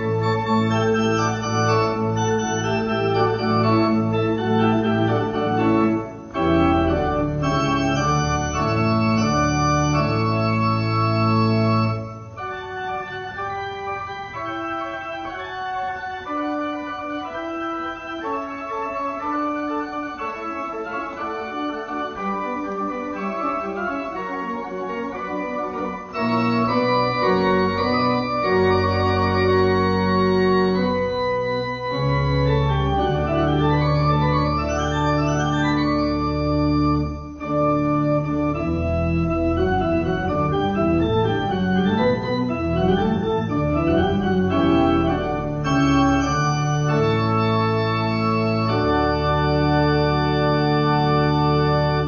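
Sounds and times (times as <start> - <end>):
organ playing chords: 0.0 - 52.0.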